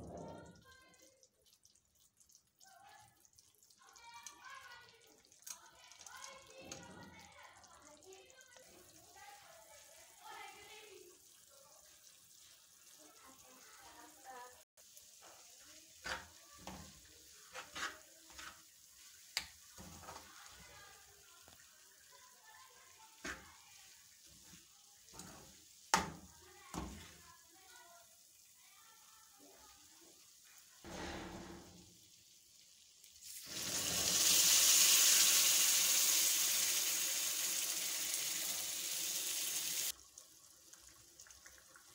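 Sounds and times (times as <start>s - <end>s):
faint sizzle: 0.0s - 41.9s
liquid splashing into pan: 14.8s - 27.5s, 29.5s - 41.9s
metal spoon scraping frying pan: 17.5s - 18.6s.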